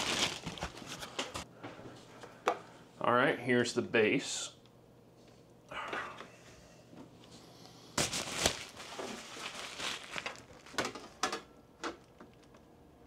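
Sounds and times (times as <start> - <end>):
packaging crinkling: 0.0 - 1.4, 8.0 - 12.6.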